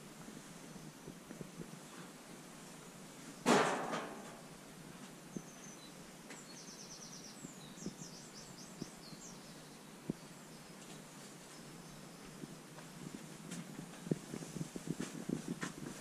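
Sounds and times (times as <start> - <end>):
loud thud: 3.4 - 4.4
songbird chirping and trilling: 4.4 - 13.2.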